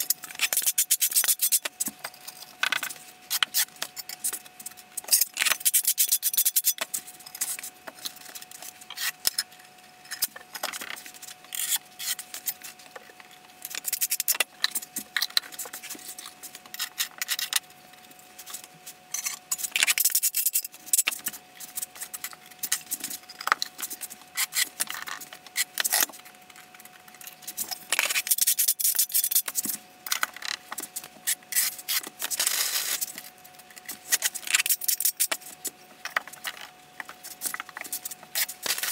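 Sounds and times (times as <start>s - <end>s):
faint steady hum: 0.0s - 38.9s.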